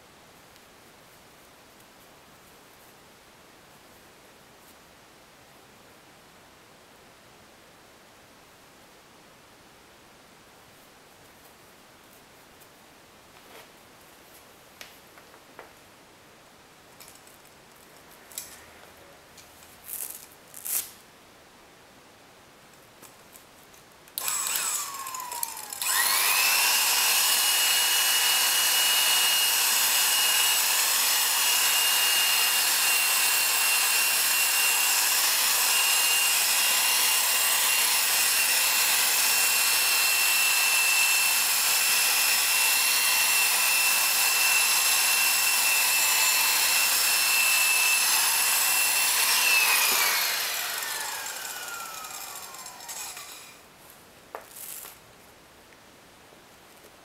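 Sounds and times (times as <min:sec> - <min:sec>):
power tool whine: 0:24.2 - 0:53.6
buffing pad hissing on finish: 0:48.2 - 0:53.5.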